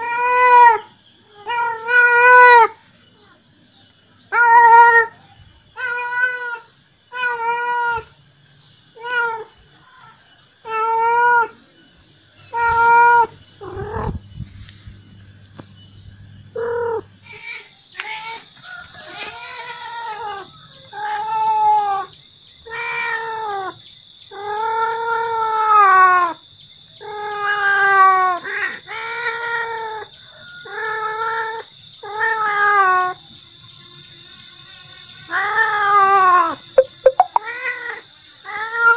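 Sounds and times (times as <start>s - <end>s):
cat yowling: 0.0s - 2.8s, 4.3s - 5.2s, 5.8s - 8.1s, 10.6s - 11.6s, 12.5s - 14.2s, 19.1s - 22.1s, 22.7s - 26.4s, 27.0s - 33.2s, 35.3s - 36.6s, 37.4s - 38.9s.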